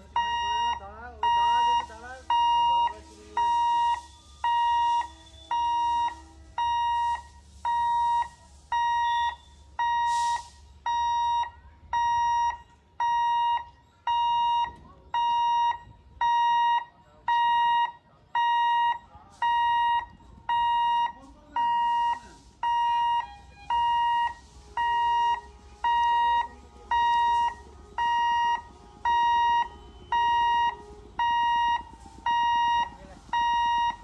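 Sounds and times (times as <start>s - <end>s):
short hiss: 6.9s - 10.8s.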